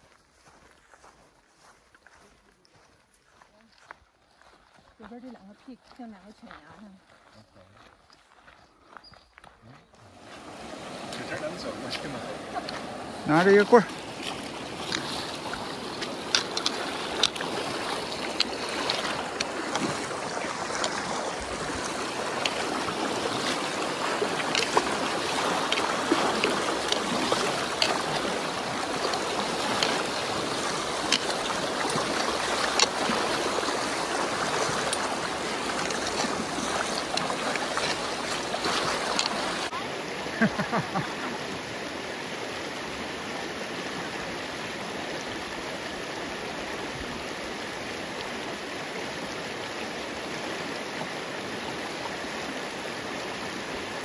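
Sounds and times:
feet splashing while wading: 9.9s - 39.7s
river rushing over stones: 10.0s - 54.0s.

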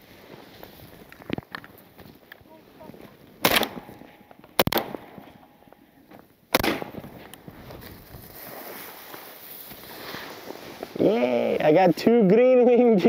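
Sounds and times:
shotgun blasts: 3.4s - 5.6s, 6.5s - 7.3s.

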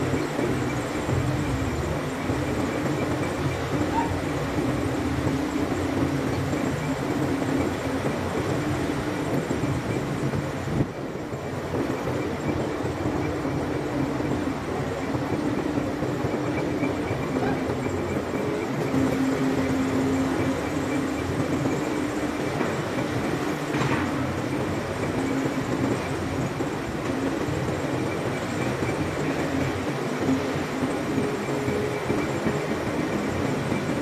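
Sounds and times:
machine hum: 0.0s - 10.2s
heavy machinery rumble: 0.0s - 34.0s.

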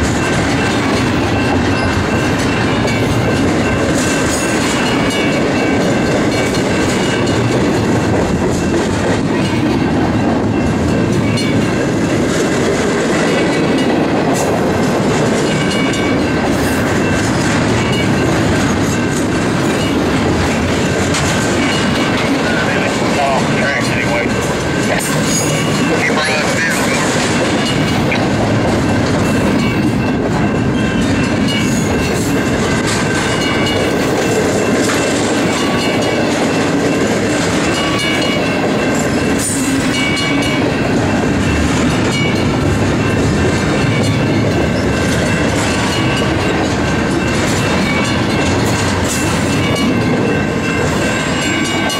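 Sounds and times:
steel wheels rumbling on rail: 0.0s - 51.9s.

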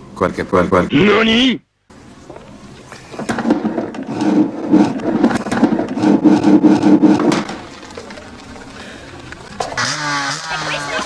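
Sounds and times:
metal chair legs scraping floor: 3.2s - 7.6s.

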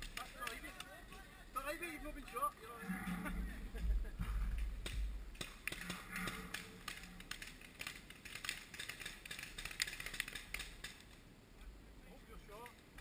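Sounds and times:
paintball markers firing: 4.6s - 11.1s.

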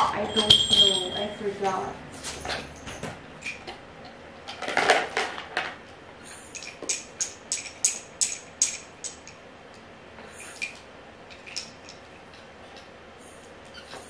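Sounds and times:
plastic toys clattering: 4.4s - 5.8s, 10.6s - 12.0s.

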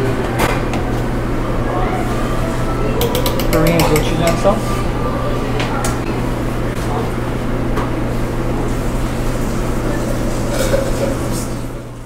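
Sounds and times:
utensils clicking: 3.0s - 4.5s.

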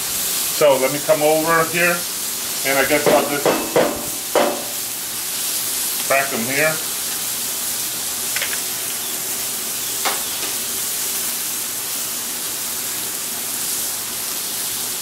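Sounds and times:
food sizzling on a griddle: 0.0s - 15.0s
sharp tap: 3.1s - 4.8s.

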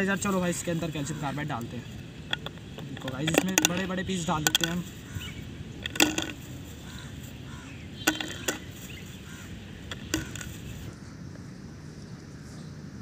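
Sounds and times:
lumps clicking into plastic bottle: 2.3s - 4.9s, 5.8s - 6.5s, 8.0s - 8.8s, 9.9s - 10.6s.

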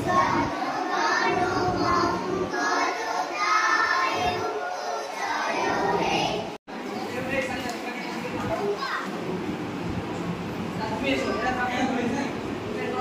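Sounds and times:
children singing together: 0.0s - 6.6s.

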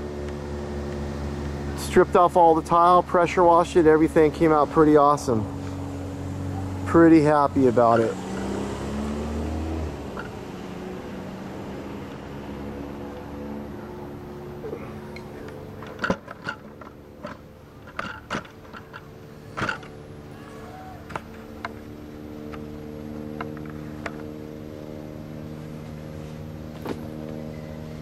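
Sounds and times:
engine humming: 0.0s - 28.0s
sharp clicks and knocks: 15.2s - 20.0s.

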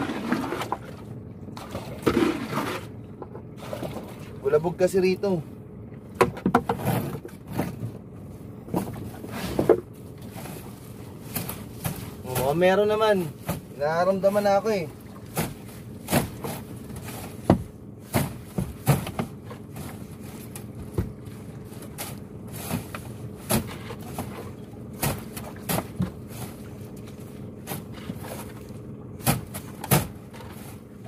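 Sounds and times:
steady low hum: 0.0s - 31.0s
net gear knocking on boat: 6.1s - 7.9s, 15.0s - 22.0s, 22.7s - 26.6s
fishing net rustling: 8.6s - 12.6s, 13.2s - 31.0s.

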